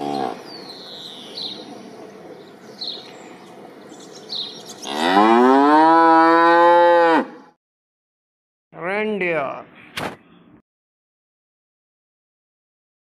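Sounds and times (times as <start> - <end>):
cow mooing: 0.0 - 0.4, 4.8 - 7.5.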